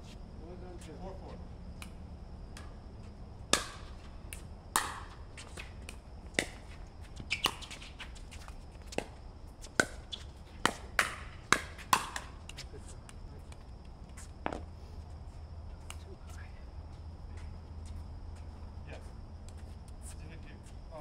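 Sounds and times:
paddles striking plastic ball: 9.8s - 12.6s.

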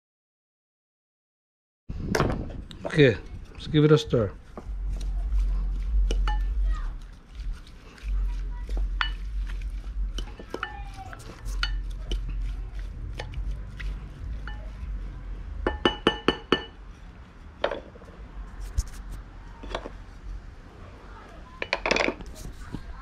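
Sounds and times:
spoon stirring in glass bowl: 4.9s - 16.8s
spoon clinking against glass: 14.5s - 14.7s.

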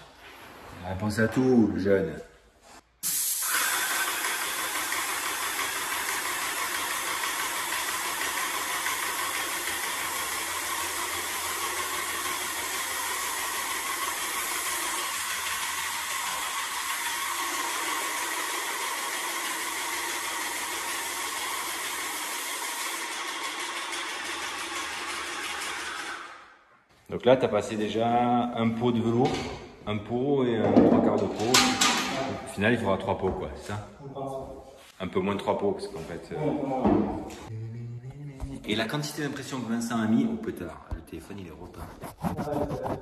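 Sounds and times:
paint spray gun hissing: 3.0s - 24.8s.

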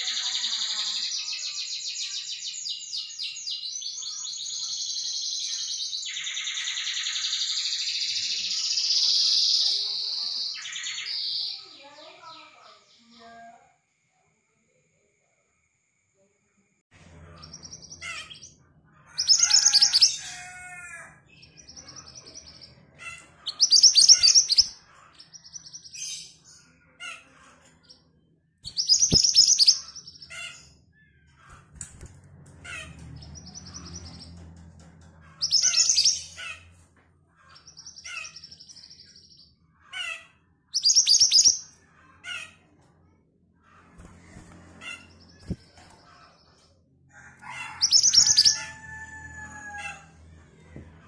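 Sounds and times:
songbird singing trills: 23.5s - 24.8s, 28.7s - 30.2s, 40.8s - 41.7s.

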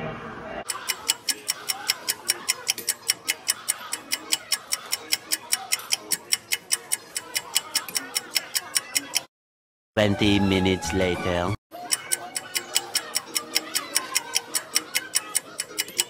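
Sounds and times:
rapid even ticking: 0.7s - 9.3s, 11.8s - 16.0s.

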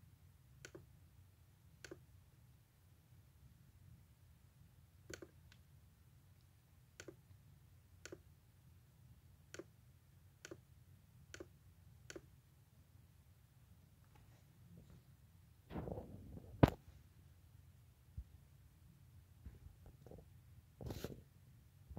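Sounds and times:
faint low hum: 0.0s - 21.9s
computer mouse clicks: 0.6s - 0.9s, 1.8s - 2.1s, 5.1s - 5.6s, 7.0s - 7.3s, 8.0s - 8.3s, 9.5s - 9.8s, 10.4s - 10.6s, 11.3s - 12.3s.

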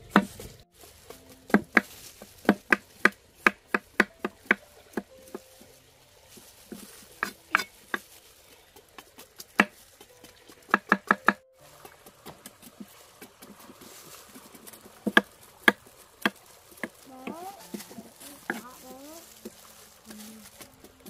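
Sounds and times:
faint running water trickle: 0.7s - 10.9s, 11.6s - 21.0s
knife chopping on wooden board: 9.5s - 9.8s, 10.7s - 13.7s.

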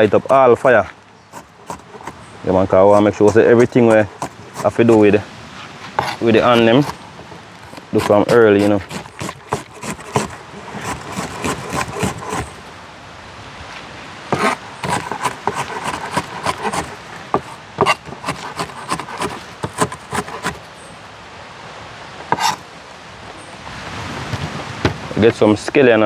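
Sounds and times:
wood scraping: 0.0s - 12.7s, 14.3s - 20.7s, 22.2s - 22.6s.

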